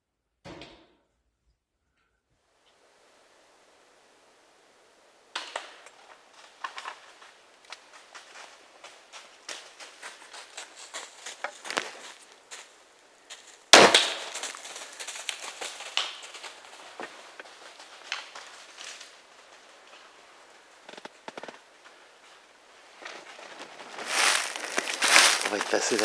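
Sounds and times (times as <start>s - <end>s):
crackling clicks: 5.3s - 12.7s, 13.3s - 22.4s.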